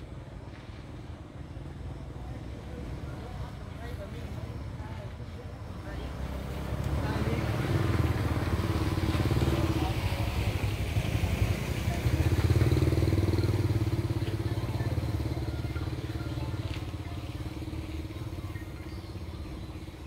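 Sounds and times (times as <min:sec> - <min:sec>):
motor vehicle engine running: 0:06.0 - 0:20.0.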